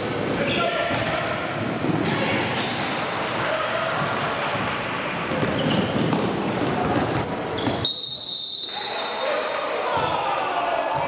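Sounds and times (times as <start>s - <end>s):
sneakers squeaking on hardwood: 0.5s - 2.2s, 3.8s - 8.4s.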